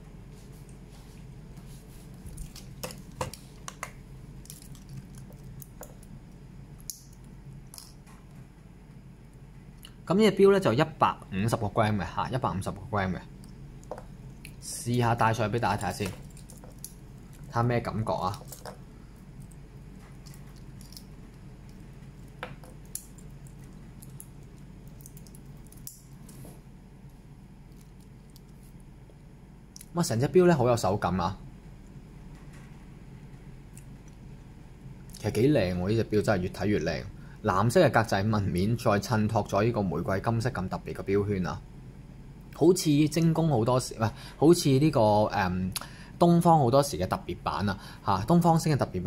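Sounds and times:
faint steady hum: 0.0 - 49.0
metal watch bracelet handling: 20.0 - 21.1.

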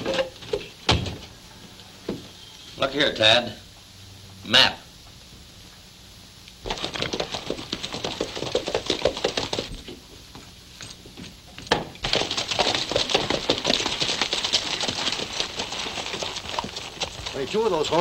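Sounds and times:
horses' hooves clattering: 6.6 - 18.0.

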